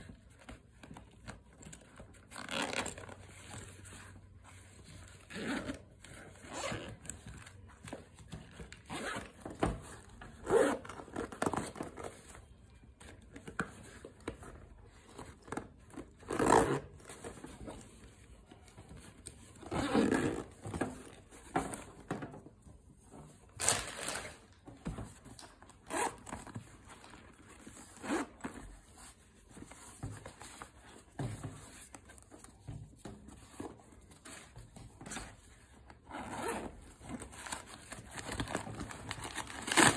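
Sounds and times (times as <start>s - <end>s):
bags rubbing and scraping: 2.3s - 4.4s, 16.2s - 17.2s, 19.6s - 20.9s.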